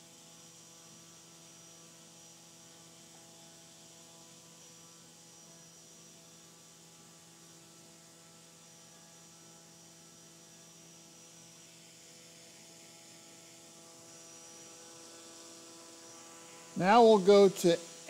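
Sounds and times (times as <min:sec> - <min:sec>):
thin high whine: 0:08.8 - 0:18.0.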